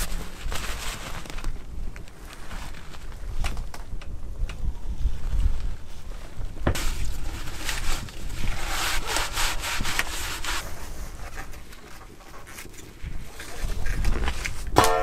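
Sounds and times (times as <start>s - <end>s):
paper towel rubbing metal: 6.8s - 14.3s.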